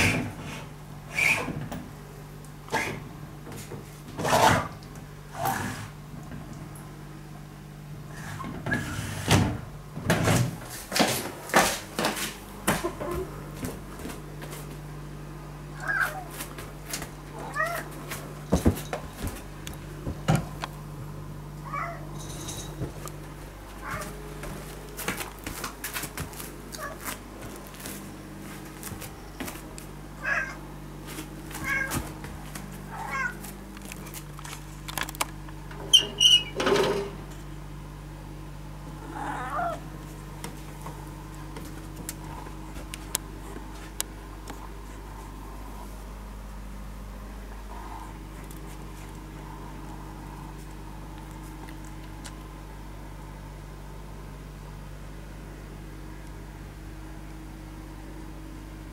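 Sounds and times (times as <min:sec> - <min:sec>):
steady low hum: 0:00.0 - 0:58.9
cat meowing: 0:15.8 - 0:16.3, 0:17.4 - 0:17.9, 0:30.2 - 0:30.6, 0:31.6 - 0:32.0, 0:32.9 - 0:33.4.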